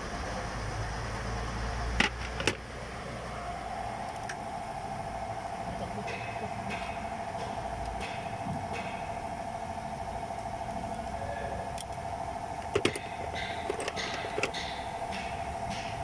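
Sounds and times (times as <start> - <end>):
steady background hum: 0.0 - 16.0
metal tools clicking on engine: 5.9 - 9.2, 9.9 - 16.0.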